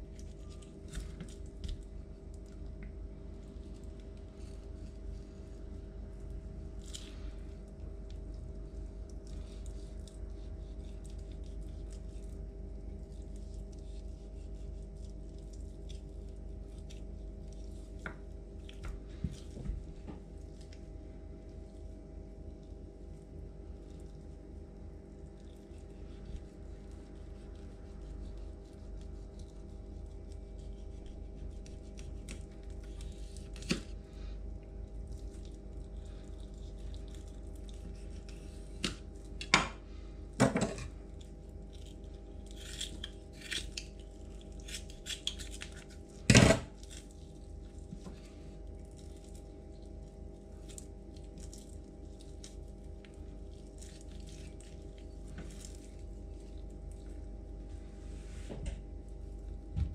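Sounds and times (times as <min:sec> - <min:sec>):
low hum: 0:00.0 - 0:59.9
knife and scissors cutting fish: 0:25.6 - 0:34.0, 0:35.2 - 0:39.6, 0:40.6 - 0:47.1.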